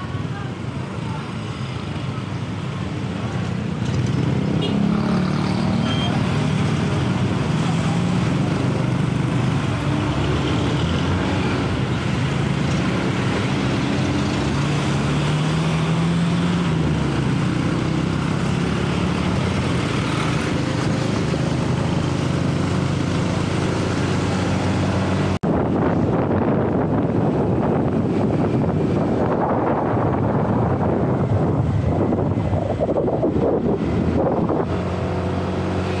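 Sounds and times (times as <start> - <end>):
road and traffic noise: 0.0 - 36.0
wind on microphone: 16.5 - 36.0.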